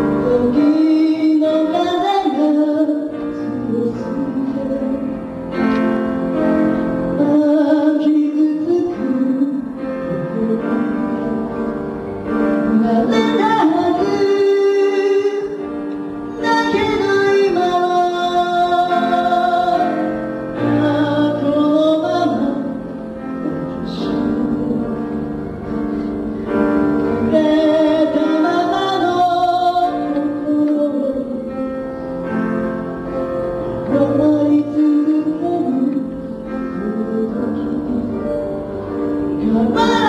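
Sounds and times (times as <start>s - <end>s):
song with instrumental backing: 0.0s - 40.0s.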